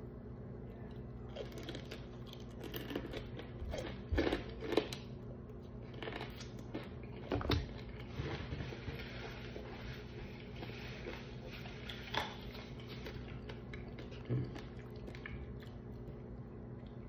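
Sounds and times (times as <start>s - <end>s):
steady low hum: 0.0s - 17.0s
crunching fried chicken: 1.2s - 17.0s.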